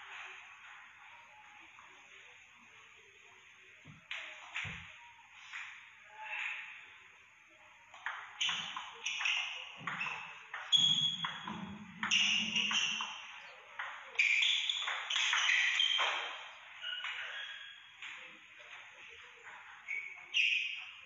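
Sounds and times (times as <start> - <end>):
ping pong ball on paddles: 7.9 - 18.2
ping pong ball bouncing on table: 8.0 - 13.2.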